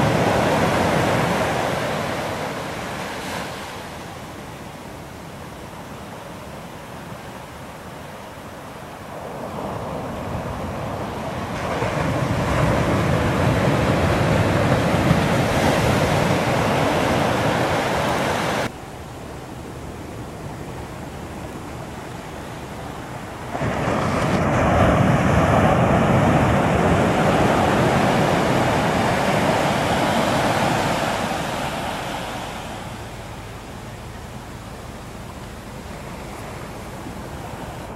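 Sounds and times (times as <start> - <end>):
ocean waves breaking: 0.0 - 37.9.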